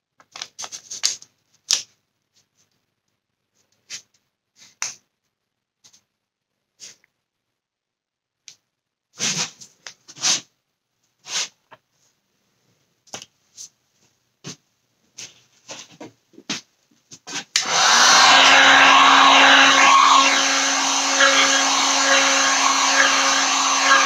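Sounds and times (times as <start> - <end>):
heat gun blowing: 17.6 - 24.0.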